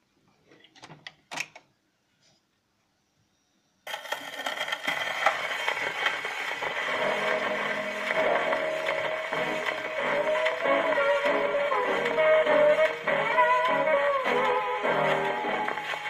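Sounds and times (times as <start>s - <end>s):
record surface hiss and crackle: 3.9s - 16.0s
gramophone music: 5.5s - 16.0s.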